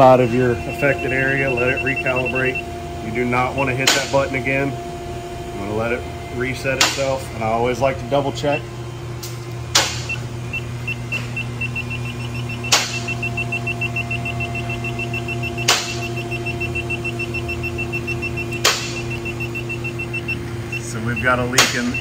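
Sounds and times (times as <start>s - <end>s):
rapid high beeps: 0.0s - 3.6s, 10.0s - 22.0s
steady low hum: 0.0s - 22.0s.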